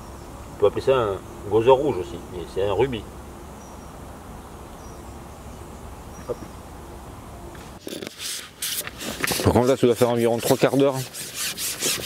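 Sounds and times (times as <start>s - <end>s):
outdoor background noise: 0.0s - 12.0s
clicks and rustles of handling: 7.6s - 10.8s.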